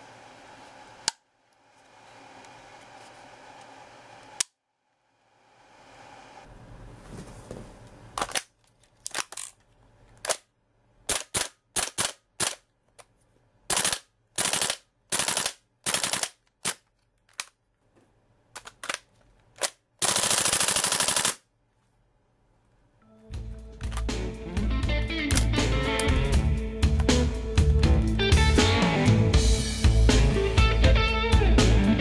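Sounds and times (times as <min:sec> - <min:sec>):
airsoft rifle firing: 0:13.7 - 0:16.4, 0:20.0 - 0:21.4.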